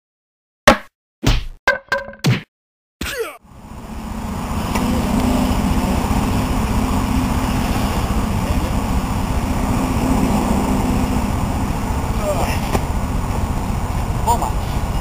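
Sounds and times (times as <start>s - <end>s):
low rumble with hum: 3.4s - 15.0s.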